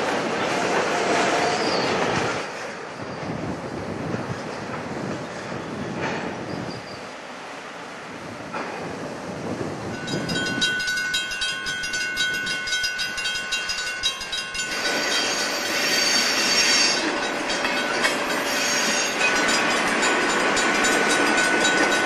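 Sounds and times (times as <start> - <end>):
diesel locomotive passing: 0.0 - 22.0
wind noise on microphone: 0.5 - 7.2, 8.0 - 22.0
squeal of wheel flanges: 6.4 - 7.0, 14.8 - 17.1, 18.3 - 19.4
wheels clicking over rail joints: 9.9 - 22.0.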